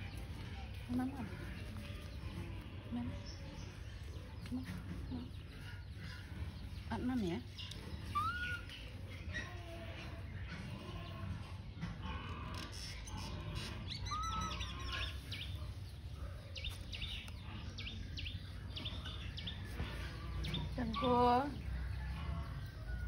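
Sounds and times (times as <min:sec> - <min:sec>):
high animal chirps and squeaks: 0:07.5 - 0:11.4, 0:12.5 - 0:15.7.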